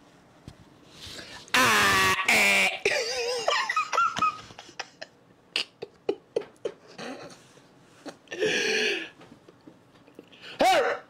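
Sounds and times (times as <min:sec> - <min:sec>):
man laughing hard: 0:02.1 - 0:07.3
breathy gasps: 0:08.3 - 0:09.2.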